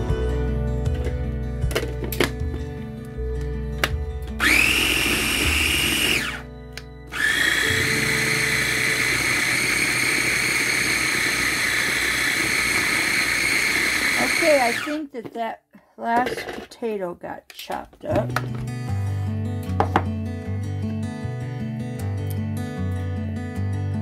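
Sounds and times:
food chopper motor whining: 4.4s - 6.4s, 7.1s - 15.0s.

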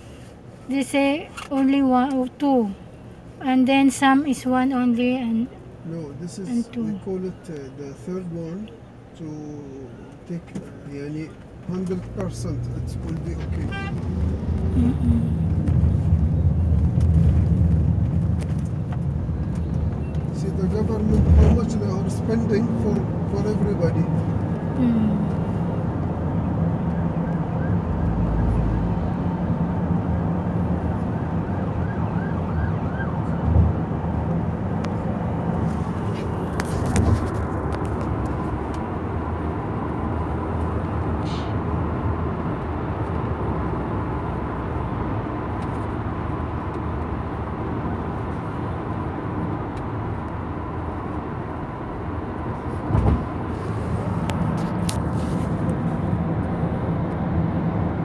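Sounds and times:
car cabin road and engine noise: 0.0s - 58.0s.

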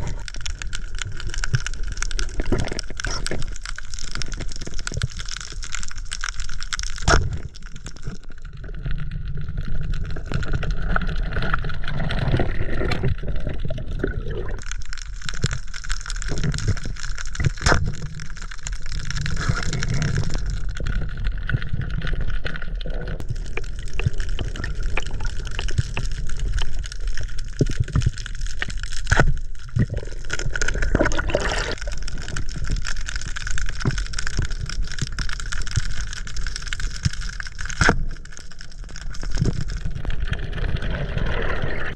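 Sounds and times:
underwater rushing water: 9.6s - 28.9s, 29.5s - 41.9s.

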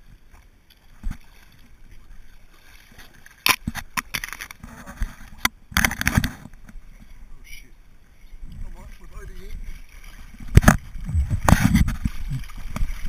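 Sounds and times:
faint water: 0.0s - 13.0s
twigs and leaves scraping camera: 3.0s - 6.8s, 10.2s - 13.0s.

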